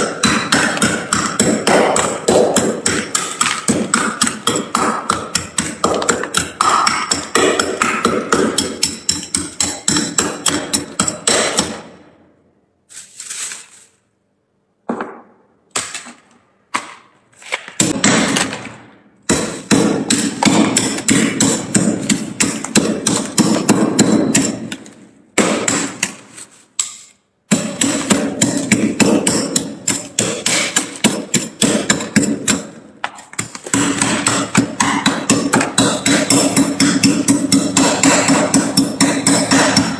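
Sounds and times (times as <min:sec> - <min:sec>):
metal spoon scraping frost: 0:12.8 - 0:14.2.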